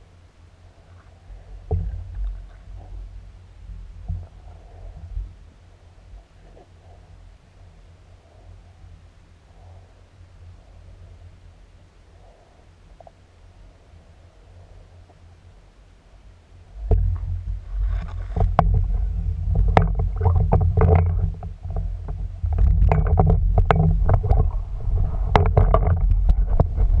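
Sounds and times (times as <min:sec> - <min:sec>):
low rumble of water underwater: 0:00.0 - 0:27.0
sharp clicks and knocks: 0:16.8 - 0:24.6, 0:25.2 - 0:27.0.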